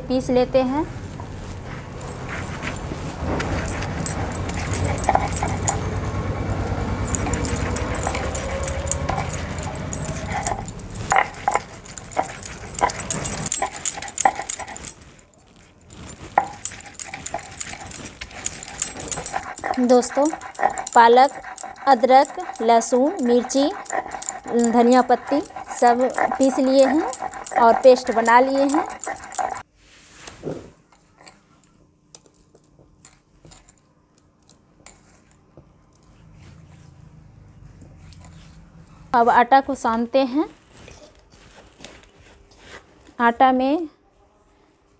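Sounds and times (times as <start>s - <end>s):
bangles clinking: 2.0s - 6.2s, 6.9s - 29.6s
stone pestle grinding on slab: 7.1s - 15.0s, 16.0s - 29.6s.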